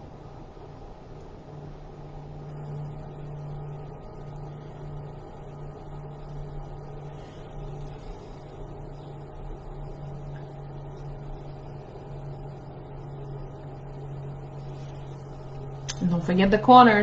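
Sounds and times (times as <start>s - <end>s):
low machine hum: 0.0s - 17.0s.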